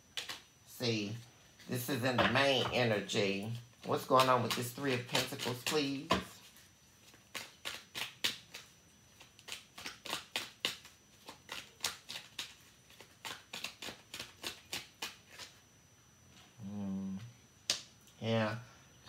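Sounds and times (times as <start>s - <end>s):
cards being shuffled: 3.9s - 15.6s
person humming: 16.6s - 17.3s.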